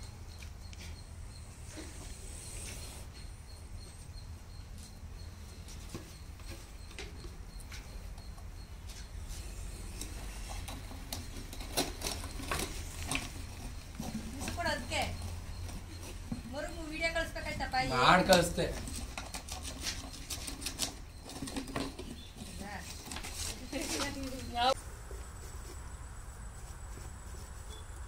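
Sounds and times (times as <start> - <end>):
faint clicks and rustles: 4.6 - 28.0
plastic jar knocking and scraping: 18.2 - 24.5.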